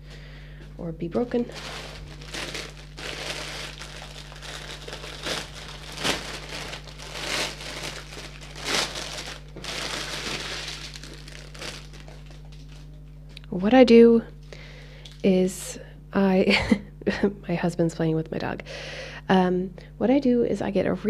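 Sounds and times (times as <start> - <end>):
plastic bag crinkling: 1.3 - 13.0.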